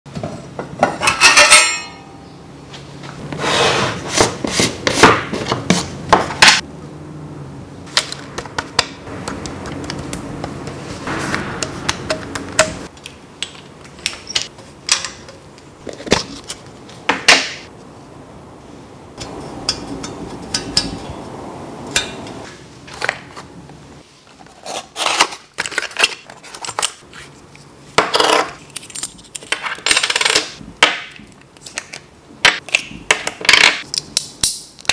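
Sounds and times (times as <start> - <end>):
metallic clinks and knocks: 0.8 - 2.2, 8.1 - 12.9.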